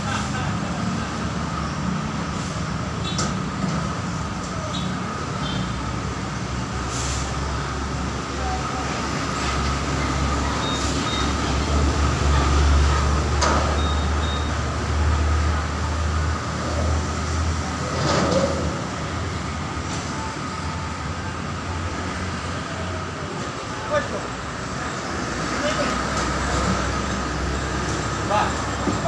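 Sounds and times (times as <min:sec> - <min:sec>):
road traffic rumble: 0:00.0 - 0:29.0.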